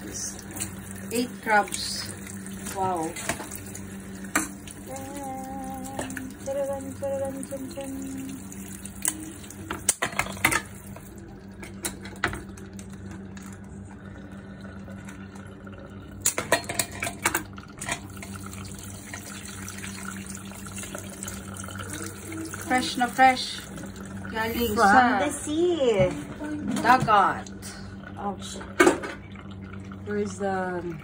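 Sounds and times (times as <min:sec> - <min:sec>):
tap water spraying into sink: 0:00.0 - 0:11.1
steady low hum: 0:00.0 - 0:31.0.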